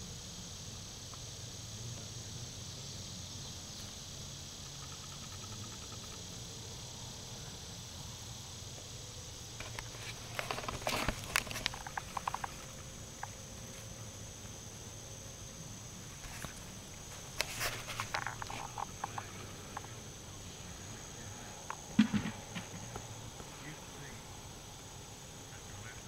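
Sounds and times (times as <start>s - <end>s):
insects droning: 0.0s - 26.0s
crackling and clicking: 9.6s - 13.4s.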